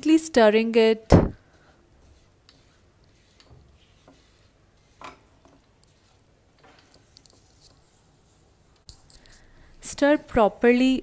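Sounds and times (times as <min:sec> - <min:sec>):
spatula scraping a frying pan: 0:01.6 - 0:07.5.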